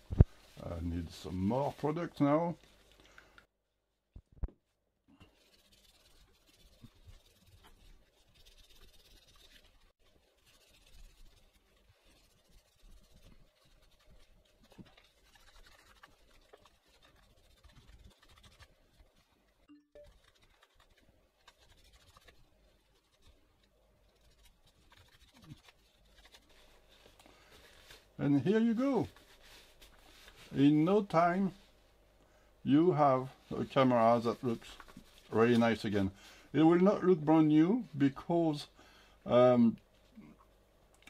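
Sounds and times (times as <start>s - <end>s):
paper towel rubbing and scratching: 0.0s - 3.0s, 5.2s - 31.8s, 32.8s - 36.1s.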